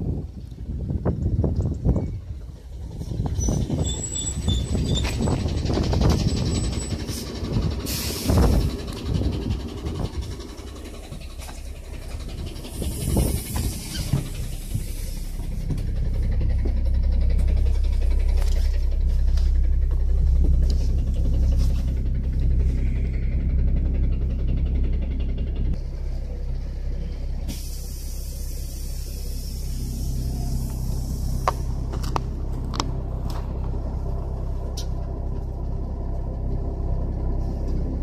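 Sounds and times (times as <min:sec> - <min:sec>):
bus engine rumbling: 0:00.0 - 0:38.0
air hiss: 0:07.1 - 0:08.8, 0:12.6 - 0:15.4, 0:27.5 - 0:31.6.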